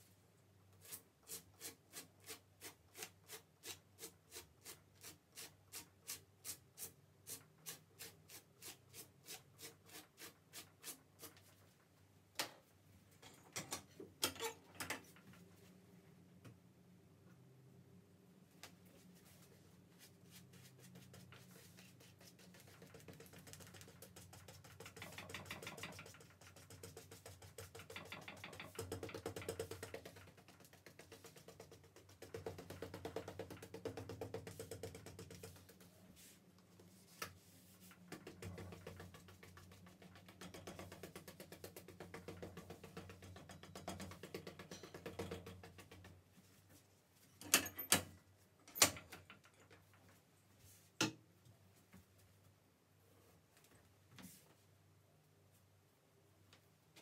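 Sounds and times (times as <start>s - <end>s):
glue brush scrubbing paper: 20.0s - 25.2s.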